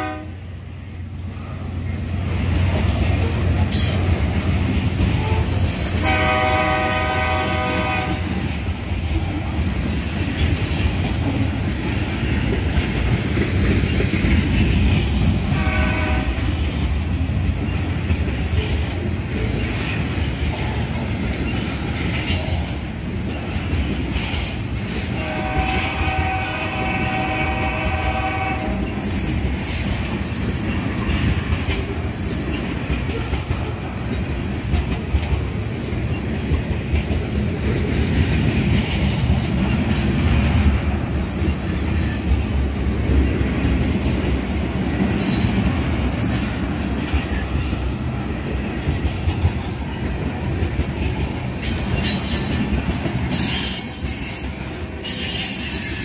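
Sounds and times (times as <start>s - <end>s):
train horn blasts: 0.0s - 0.4s, 5.2s - 8.4s, 15.4s - 16.6s, 25.1s - 29.1s
freight train wheels rumbling: 0.0s - 56.0s.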